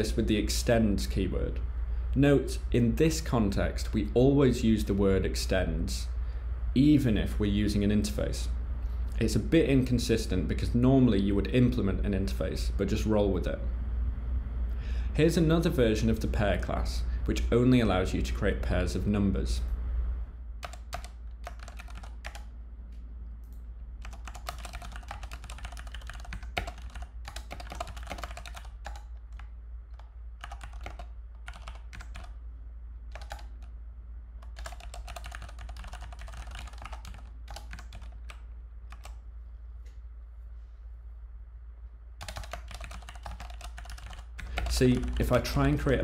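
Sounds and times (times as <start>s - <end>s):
steady low hum: 0.0s - 46.0s
computer keyboard typing: 20.6s - 22.5s, 23.5s - 32.4s, 33.1s - 33.7s, 34.4s - 39.2s, 42.2s - 45.6s.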